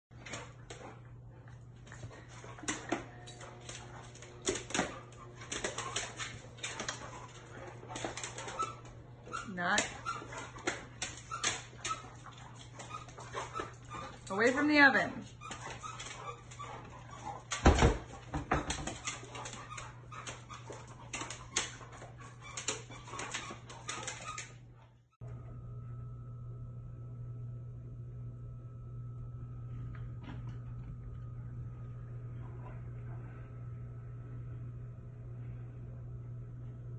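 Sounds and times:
dogs scuffling: 0.1 - 24.6
dog claws clicking on tile: 1.9 - 14.2, 15.4 - 24.5.

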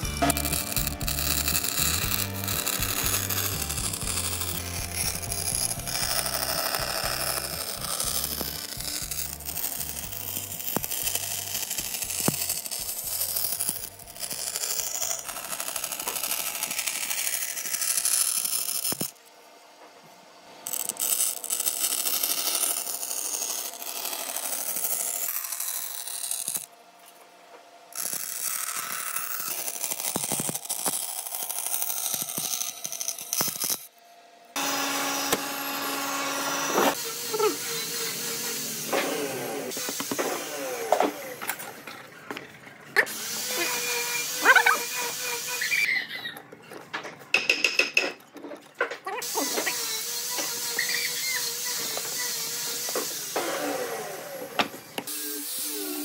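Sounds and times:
tool scraping and clicking on wood: 0.0 - 19.1.

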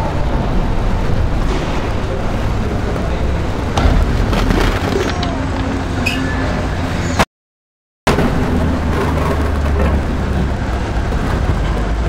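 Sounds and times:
car engines rumbling: 0.0 - 7.2, 8.1 - 12.0
metal crashes: 3.7 - 7.2.

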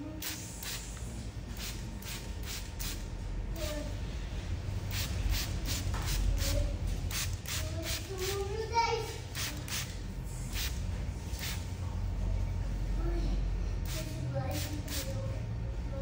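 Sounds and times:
low steady rumble: 2.7 - 16.0.

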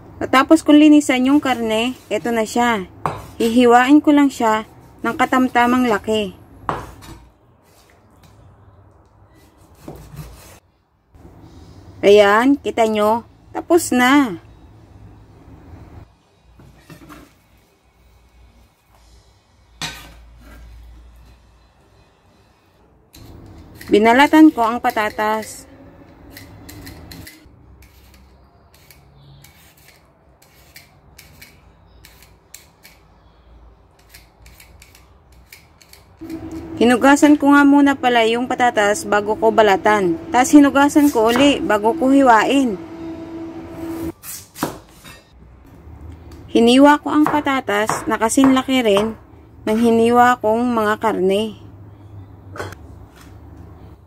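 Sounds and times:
potato peeling scrapes: 9.3 - 10.6, 26.3 - 33.0, 34.0 - 36.6
knife knocking on chopping board: 47.3 - 49.2.

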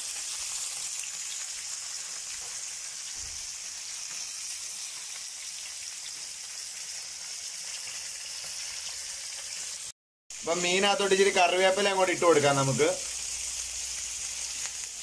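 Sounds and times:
fish frying in sizzling oil: 0.0 - 15.0.

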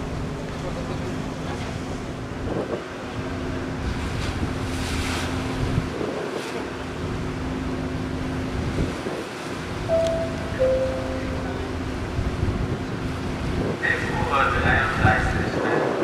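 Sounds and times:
wind buffeting microphone: 2.0 - 9.8, 11.7 - 16.0
ship engines humming: 6.6 - 15.5.

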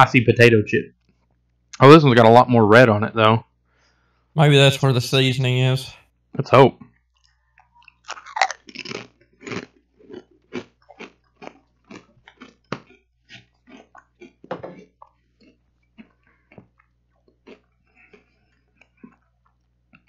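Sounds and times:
person crunching potato chip: 7.1 - 20.0.

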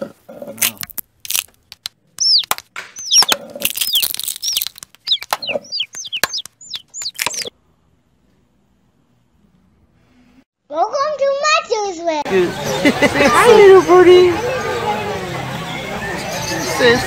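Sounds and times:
chick peeps: 2.2 - 7.5.

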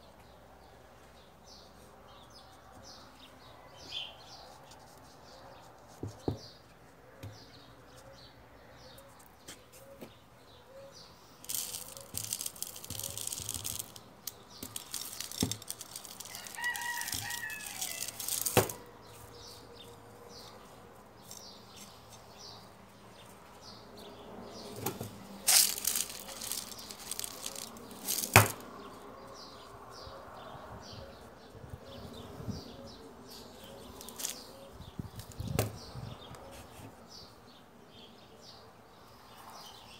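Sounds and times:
small birds chirping: 0.0 - 39.9
rustling from handling: 11.4 - 19.3, 24.7 - 28.6, 33.3 - 34.5
rooster crowing: 16.2 - 18.8.

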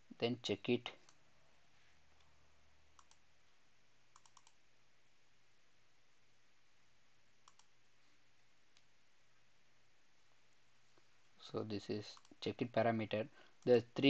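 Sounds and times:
faint computer clicking: 0.9 - 1.2, 2.9 - 4.6, 7.4 - 7.8, 11.8 - 12.7, 13.4 - 13.8.

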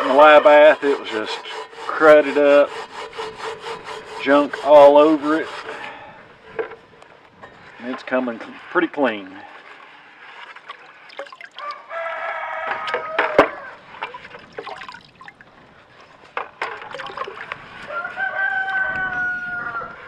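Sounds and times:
liquid dripping and splashing: 10.5 - 11.8, 14.0 - 15.5, 16.8 - 17.5
rooster crowing: 11.6 - 13.9, 17.8 - 20.0.

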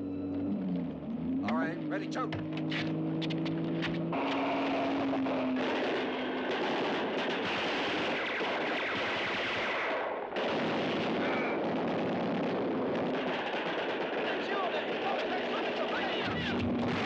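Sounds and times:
rapid gunfire: 4.1 - 17.0.

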